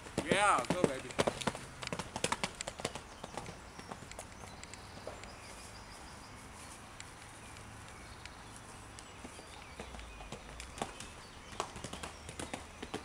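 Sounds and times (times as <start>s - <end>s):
hoofbeats on sand: 0.0s - 6.0s, 9.0s - 13.0s.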